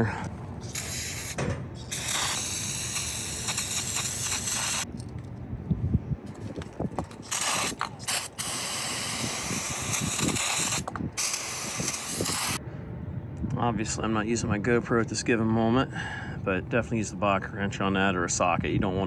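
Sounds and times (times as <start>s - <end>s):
aerosol spray hissing: 0.6s - 4.9s, 7.2s - 12.6s.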